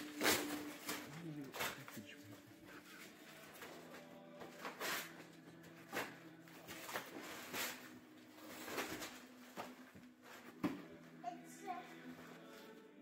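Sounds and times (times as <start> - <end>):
wrapping paper tearing and crumpling: 0.0 - 10.5.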